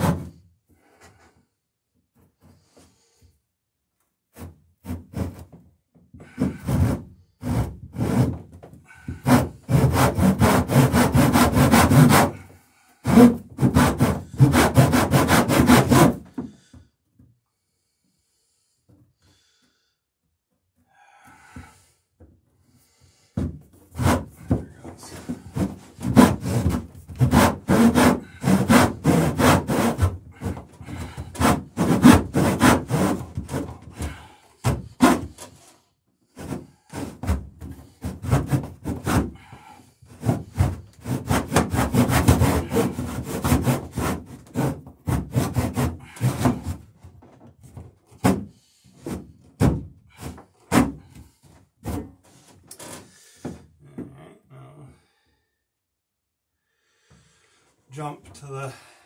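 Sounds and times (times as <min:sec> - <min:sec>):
handsaw cutting wood: 0:06.3 - 0:16.5, 0:23.9 - 0:35.7, 0:36.3 - 0:47.0, 0:48.1 - 0:51.1.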